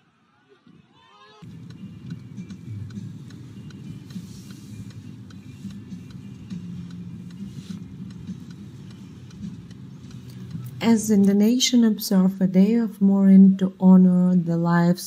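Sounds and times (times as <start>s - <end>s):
faint ticks: 1.4s - 10.8s
car engine rumble inside cabin: 1.4s - 11.3s.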